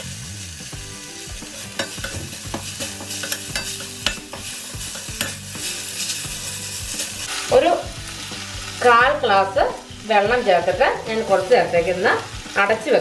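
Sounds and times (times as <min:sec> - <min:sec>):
masala sizzling in pan: 0:00.0 - 0:13.0
spoon clinking and scraping pan: 0:01.5 - 0:07.6.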